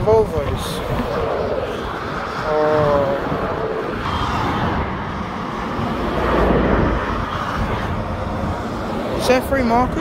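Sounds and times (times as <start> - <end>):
lorry and car engines: 0.0 - 10.0.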